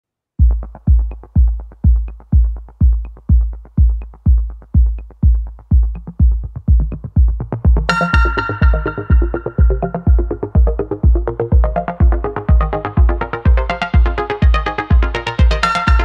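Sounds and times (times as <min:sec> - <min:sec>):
deep kick drum beat: 0:00.4 - 0:16.0
synth layer: 0:07.8 - 0:16.0.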